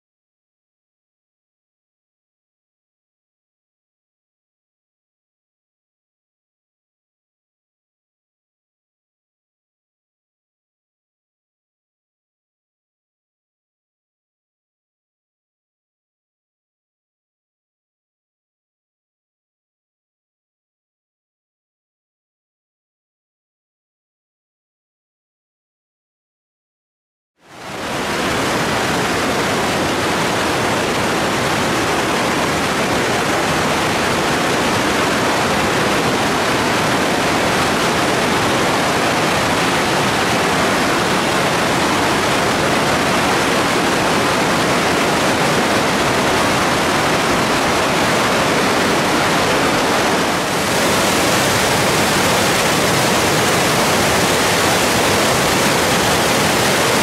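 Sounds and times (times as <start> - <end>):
waterfall and river rapids rushing: 27.5 - 57.0.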